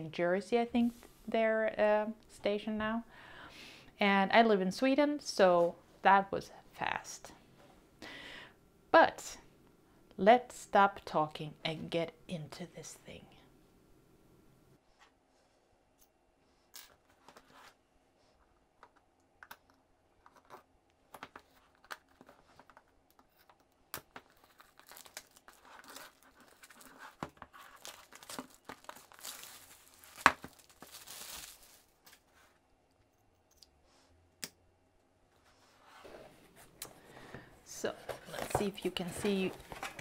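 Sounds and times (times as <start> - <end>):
plastic wrap crinkling: 24.1 - 32.4.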